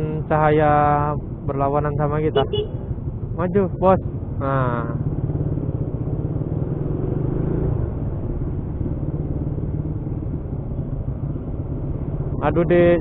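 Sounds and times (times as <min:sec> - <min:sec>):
motorcycle engine running: 0:04.2 - 0:13.0.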